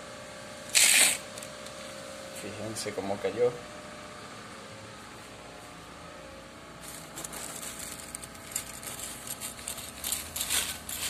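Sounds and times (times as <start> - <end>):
faint steady hum: 0.0 - 11.0
plastic bag rustling: 6.8 - 11.0.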